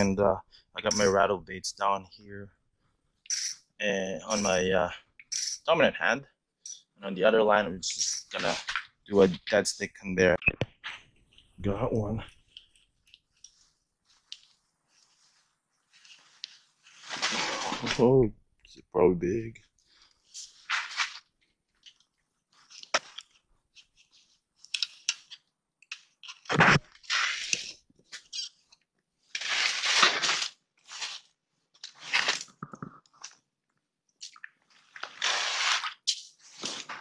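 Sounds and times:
rustling and scraping gear: 12.3s - 18.0s, 19.8s - 28.7s.

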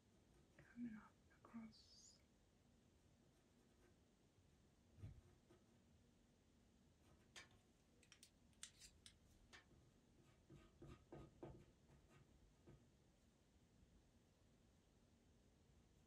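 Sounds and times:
pencil scratching on paper: 10.1s - 12.4s.

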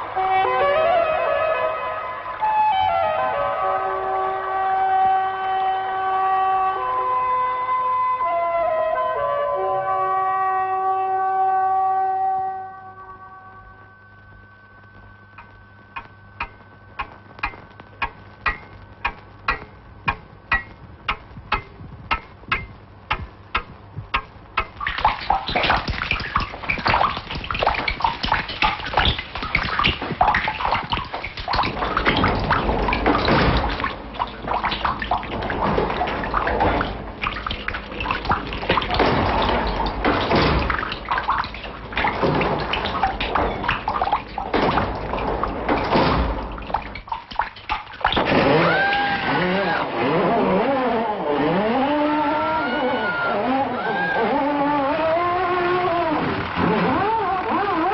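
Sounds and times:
water dripping: 12.8s - 49.5s, 53.8s - 57.9s
water pouring and splashing: 15.4s - 49.8s, 53.9s - 57.9s.

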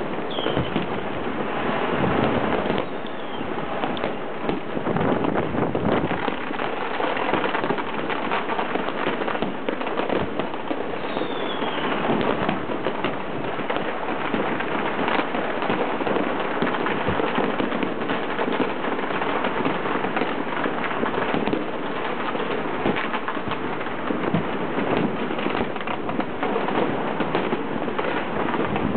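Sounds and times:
fireworks bangs and crackling: 0.0s - 28.9s
falling firework whistle: 0.2s - 1.0s, 1.9s - 4.2s, 10.9s - 12.6s.

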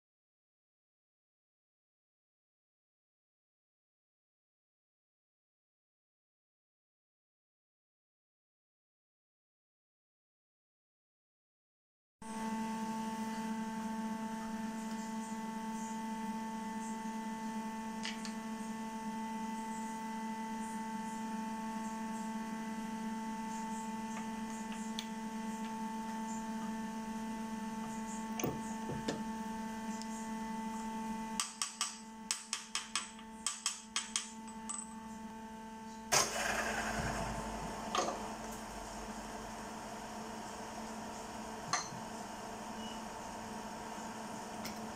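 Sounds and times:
electrical hum: 12.3s - 44.9s.

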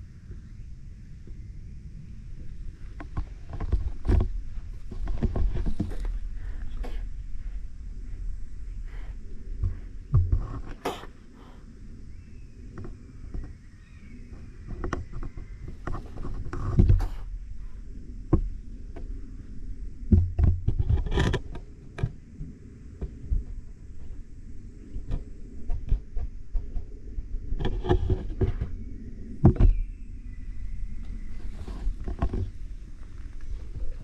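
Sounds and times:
knocks and rustles: 2.8s - 7.7s, 8.9s - 11.5s, 14.3s - 17.3s, 20.1s - 22.2s, 31.4s - 34.0s.

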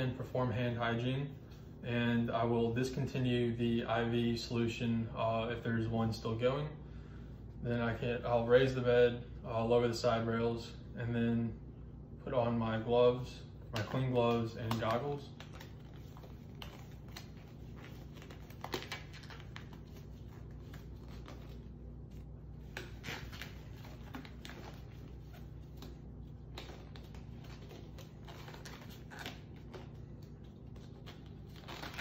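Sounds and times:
steady low hum: 0.0s - 32.0s
gloves rustling and snapping: 13.7s - 32.0s.

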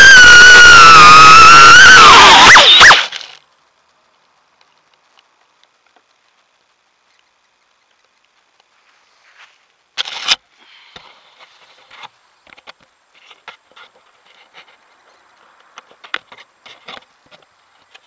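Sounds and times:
rustling and scraping handling: 8.8s - 14.9s.

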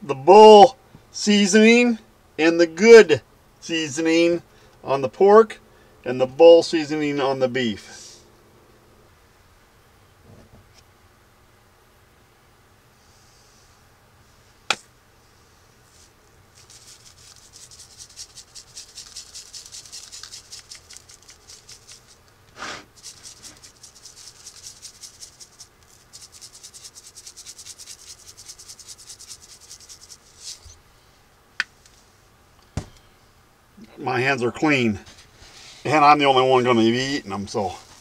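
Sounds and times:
spice shaker rattling: 16.5s - 30.7s.

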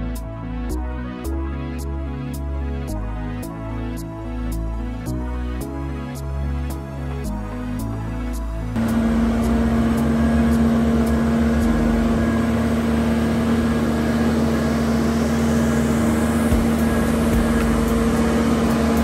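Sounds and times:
boat hoist engine humming: 8.8s - 19.0s.

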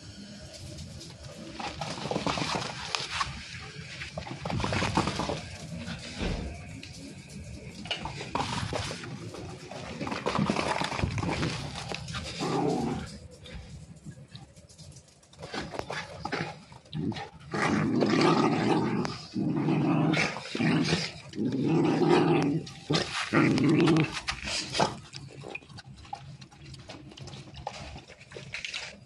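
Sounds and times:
dog growling: 7.9s - 13.2s, 15.5s - 25.7s.

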